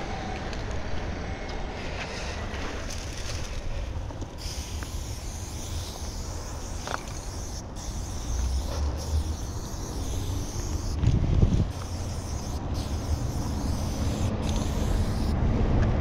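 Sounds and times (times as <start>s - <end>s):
spray paint can hissing: 2.8s - 15.4s.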